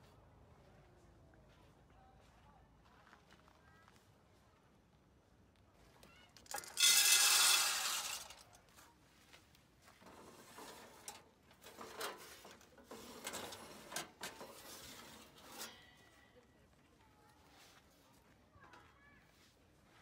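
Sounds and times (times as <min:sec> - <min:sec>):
sheet metal clanks and rattles: 0:06.4 - 0:08.5, 0:10.0 - 0:15.8
loud metallic scrape: 0:06.5 - 0:08.5, 0:10.1 - 0:15.9.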